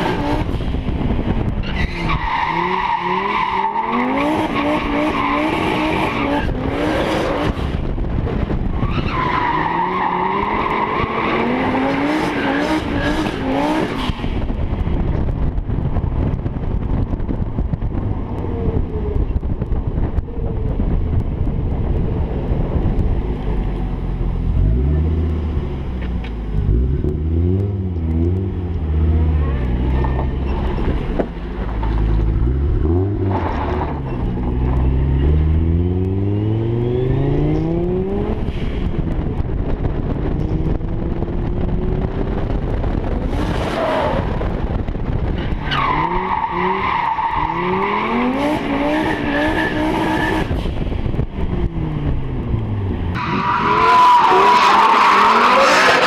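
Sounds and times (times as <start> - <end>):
wind rush: 0.0 - 25.9, 26.5 - 56.0.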